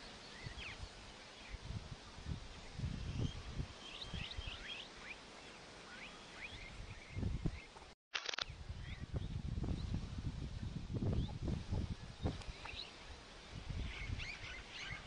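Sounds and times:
small birds chirping: 11.1 - 15.0.

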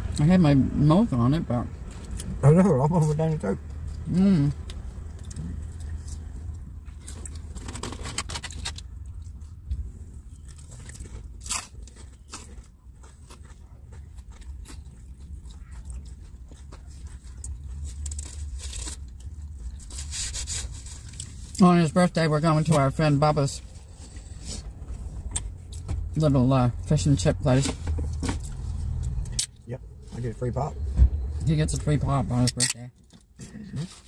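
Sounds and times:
people chewing food: 1.8 - 21.6.

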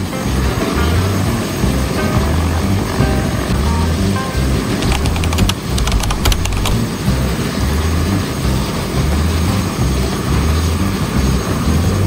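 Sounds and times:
short clicks: 4.8 - 6.8.

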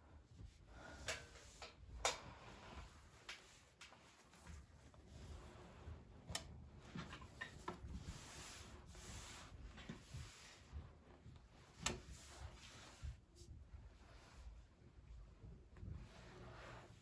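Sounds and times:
fabric rustling: 2.3 - 17.0.

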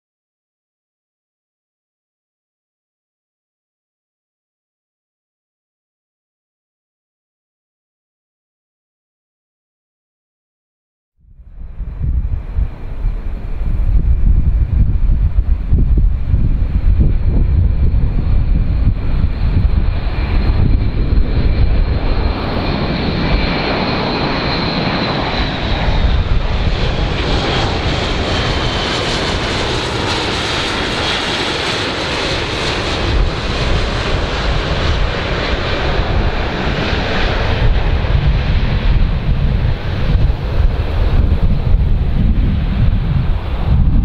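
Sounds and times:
turboprop aircraft droning: 11.2 - 44.0
high engine whine: 11.3 - 44.0.

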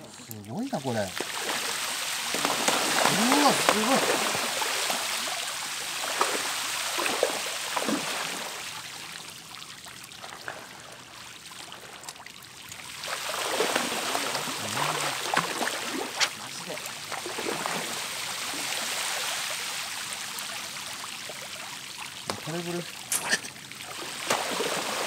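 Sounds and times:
small fish splashing on surface: 0.6 - 8.6, 13.0 - 20.4, 23.9 - 25.0.

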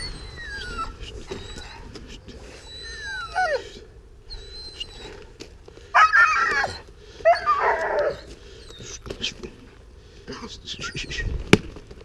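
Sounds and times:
dog whining: 0.0 - 5.2, 6.0 - 9.0.

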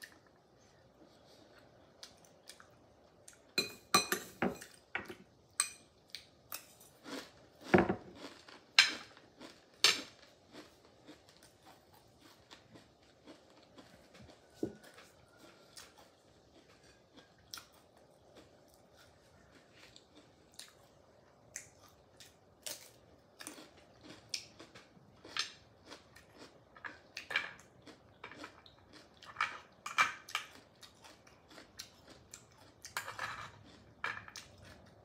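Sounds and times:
spoon clinking on glass plate: 3.6 - 4.8, 5.6 - 5.8
quiet chewing: 7.0 - 35.0.

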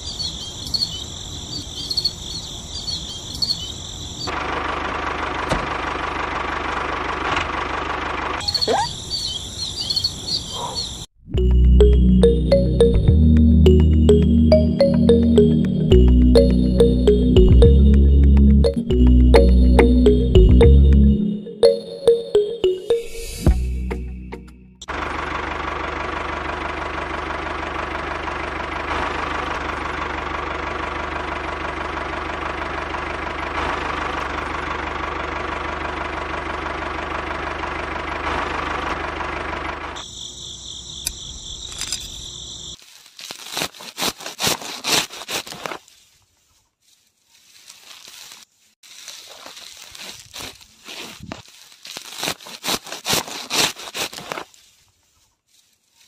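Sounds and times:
seedlings crackling and rustling: 42.8 - 56.0.

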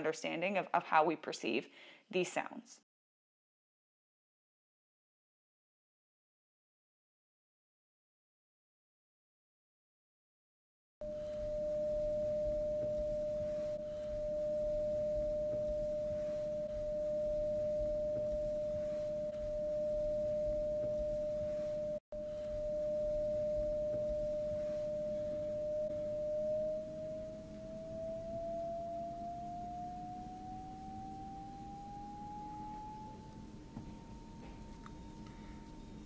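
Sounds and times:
pure sine-wave tone: 11.0 - 36.0.

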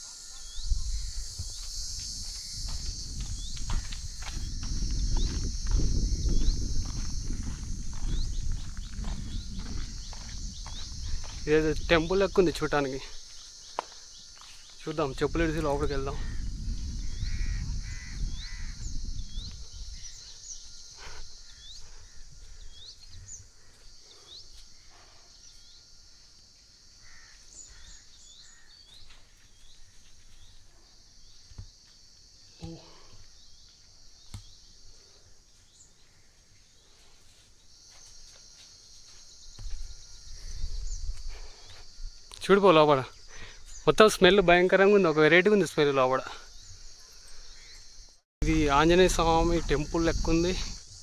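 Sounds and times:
high-pitched insect drone: 0.0 - 51.0
small birds chirping: 3.3 - 25.8, 27.0 - 38.2, 43.1 - 45.4, 46.4 - 48.9
crow cawing: 16.2 - 18.9, 27.0 - 28.9.

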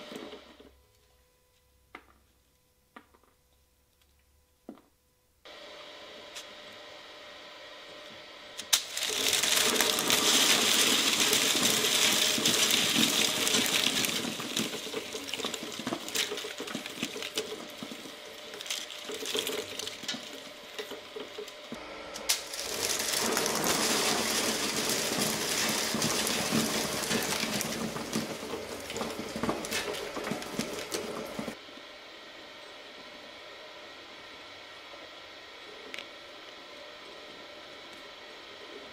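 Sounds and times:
shredder machine humming: 5.5 - 31.7
shredder crunching paper straws: 8.6 - 31.6.

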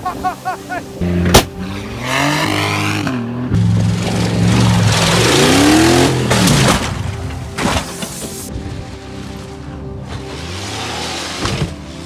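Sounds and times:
engine revving hard: 1.0 - 6.7, 10.1 - 12.0.

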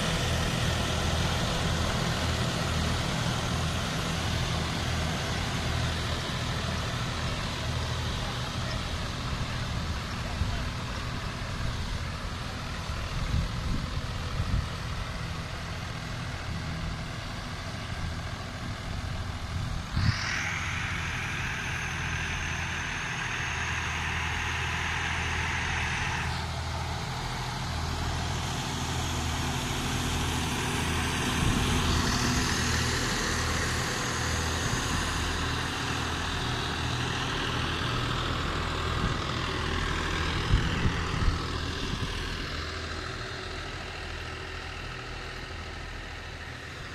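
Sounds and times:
tractor diesel engines running: 0.0 - 46.9
rushing hiss: 18.2 - 45.1.

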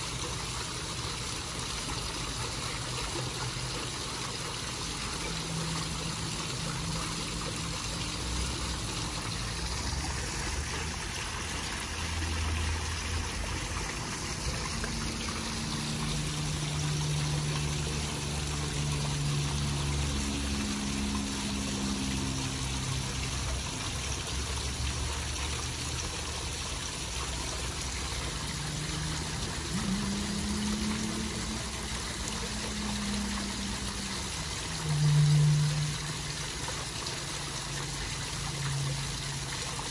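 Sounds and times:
waterfall splashing into pond: 0.0 - 39.9
low hum: 27.8 - 39.4.

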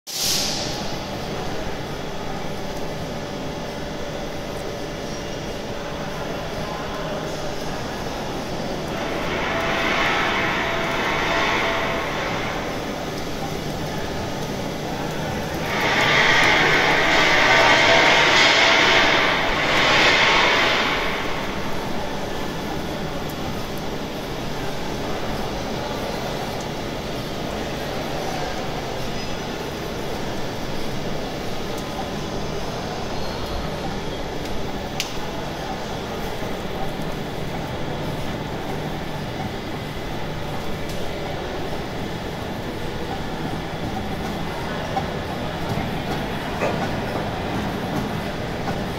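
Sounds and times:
even hiss: 0.1 - 1.8
printing machine running: 1.0 - 48.9.

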